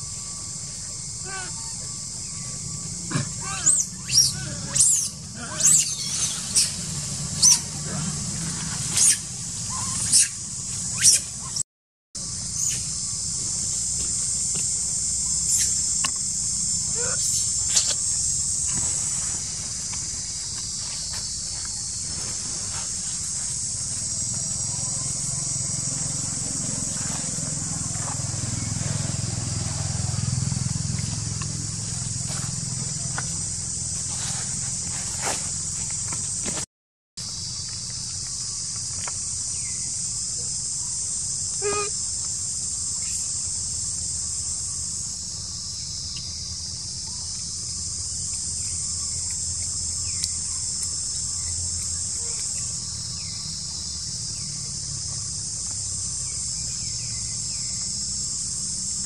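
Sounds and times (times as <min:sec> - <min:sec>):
insects buzzing: 0:00.0 - 0:11.6, 0:12.2 - 0:59.0
baby monkey squeaking: 0:03.4 - 0:06.8, 0:07.4 - 0:07.6, 0:09.0 - 0:11.6.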